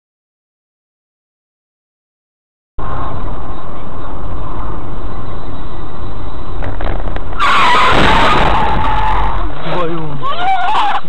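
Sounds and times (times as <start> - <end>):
car road and engine noise: 2.8 - 11.0
high tyre squeal: 7.3 - 11.0.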